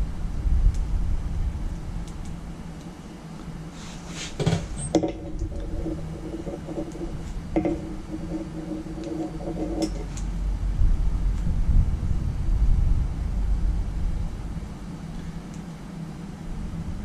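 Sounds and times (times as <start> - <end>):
steady hum: 0.0 - 17.0
low rumble: 5.0 - 15.0.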